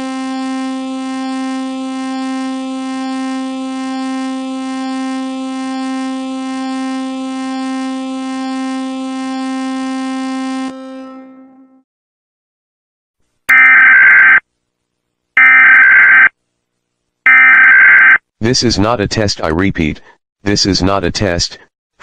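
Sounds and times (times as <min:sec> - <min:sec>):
buzzy alarm tone: 0:00.0 - 0:11.3, 0:13.5 - 0:14.4, 0:15.4 - 0:16.3, 0:17.3 - 0:18.2.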